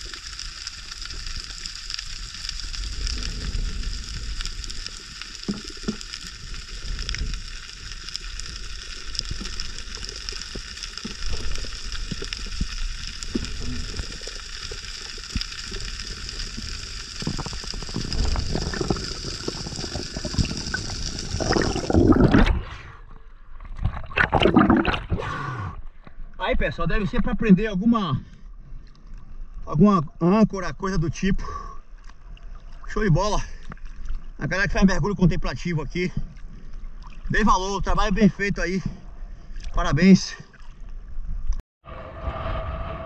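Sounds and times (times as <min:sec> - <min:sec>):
underwater hiss: 0:00.0 - 0:22.3
rush of water: 0:00.0 - 0:22.6
low water rumble: 0:00.0 - 0:43.0.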